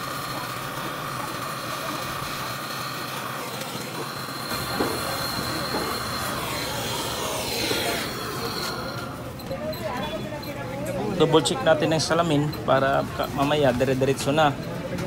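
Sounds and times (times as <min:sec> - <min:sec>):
torch flame hissing: 0:00.0 - 0:09.3.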